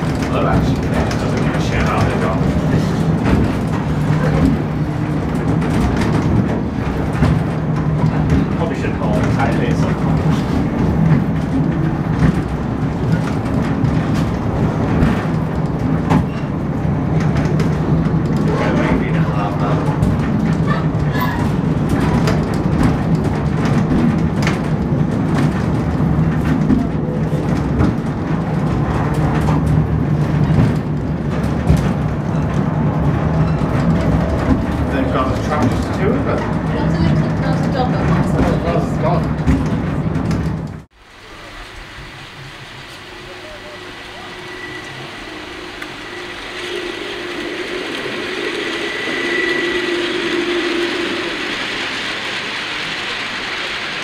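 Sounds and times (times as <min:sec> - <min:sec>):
funicular car rumbling on rails: 0:00.0 - 0:54.0.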